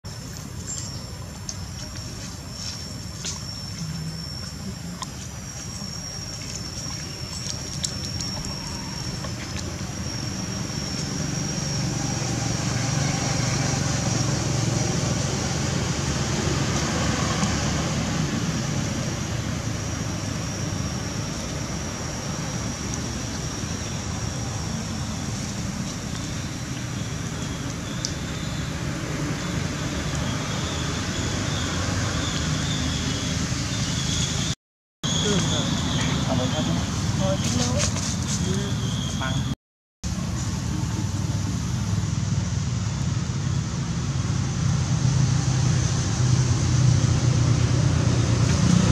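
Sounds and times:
low rumble of distant traffic: 0.1 - 48.9
high-pitched whine: 0.7 - 37.8.

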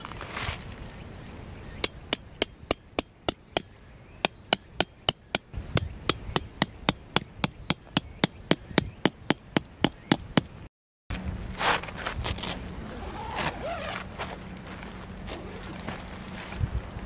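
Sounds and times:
hammer tapping metal peg: 1.8 - 10.5.

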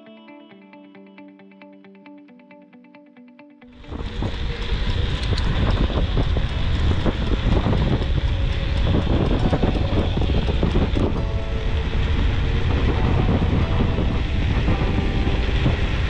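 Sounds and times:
bike rattling over rough ground: 3.8 - 16.0
wind buffeting microphone: 3.8 - 16.0.

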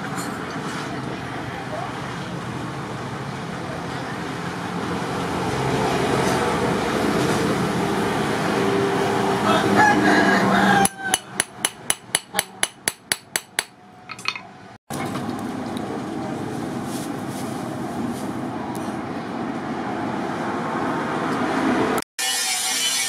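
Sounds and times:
rooster crowing: 9.2 - 11.4
forge fan blowing: 14.9 - 22.0.

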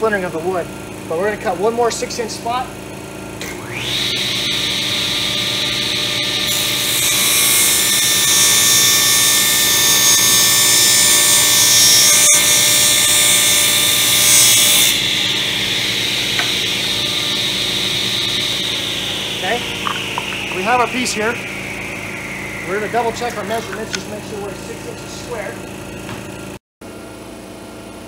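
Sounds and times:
table saw whining: 3.4 - 26.6
saw blade cutting plywood: 3.7 - 24.1.

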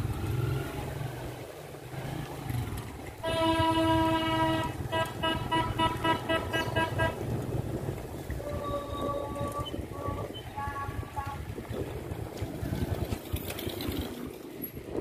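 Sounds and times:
vehicle horn toots and beeps: 3.2 - 7.2, 8.4 - 11.4.

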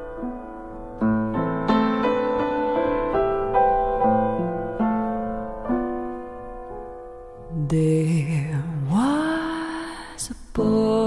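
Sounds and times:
solo piano playing: 0.0 - 7.7.

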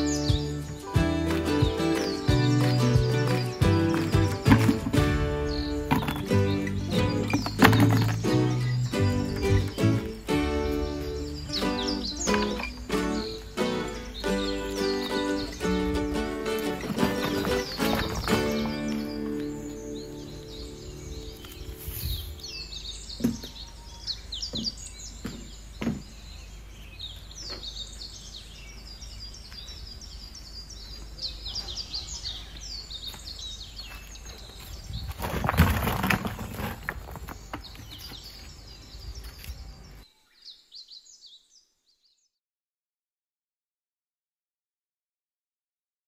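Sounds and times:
small birds chirping: 0.0 - 42.4
rustling scraping noise: 16.6 - 19.2, 21.4 - 22.5, 34.6 - 38.6.

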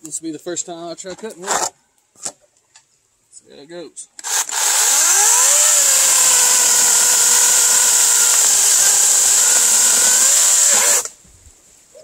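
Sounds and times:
electric chainsaw motor whine: 4.2 - 11.1
chain hissing cutting log: 4.2 - 11.2.

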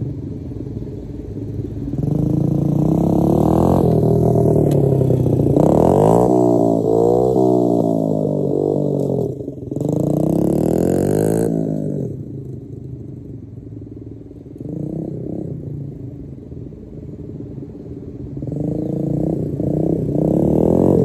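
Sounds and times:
motorbike engine revving past: 2.0 - 12.6, 18.4 - 21.0.

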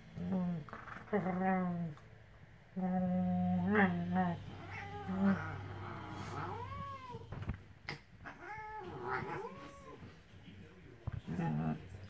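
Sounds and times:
cat yowling and meowing: 3.8 - 7.3, 8.2 - 10.0.

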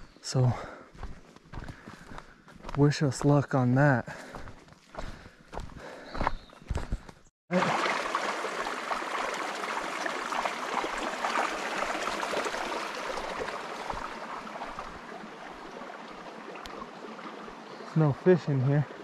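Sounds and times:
stream babbling: 7.5 - 19.0.

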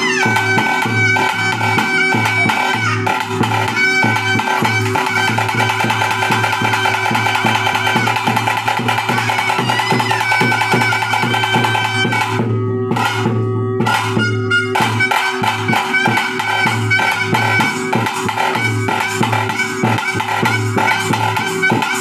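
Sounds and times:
steady drum beat: 0.0 - 22.0
sustained melody and drone: 4.4 - 21.5.

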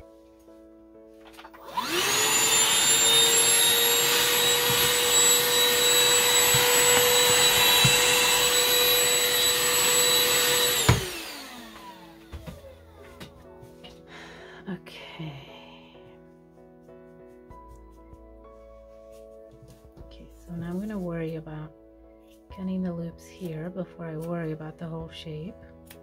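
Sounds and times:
handheld vacuum whining: 1.5 - 13.3.

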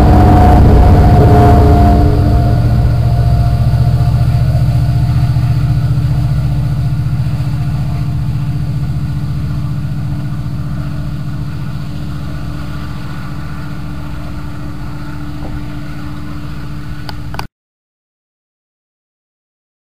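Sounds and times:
diesel locomotive engine drone: 0.0 - 17.5.

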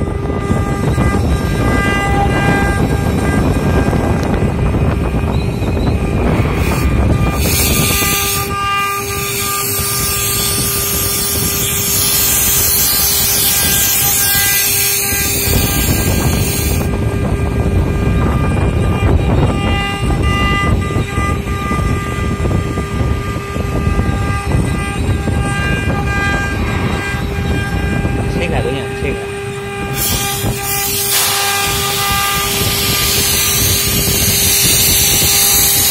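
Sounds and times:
machine hum: 0.0 - 35.9
router spindle whine: 0.0 - 35.9
high hiss of cutting: 6.6 - 16.9, 29.8 - 35.9.

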